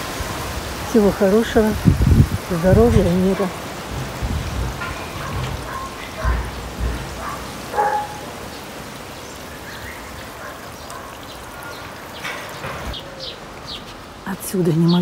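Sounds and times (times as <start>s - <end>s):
strong wind buffeting microphone: 0.0s - 9.4s
wind through garden leaves: 0.0s - 15.0s.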